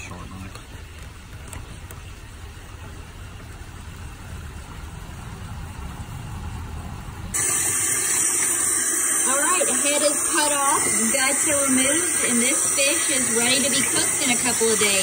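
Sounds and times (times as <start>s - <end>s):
low steady rumble: 0.0s - 7.4s
faucet running into a sink: 7.4s - 14.8s.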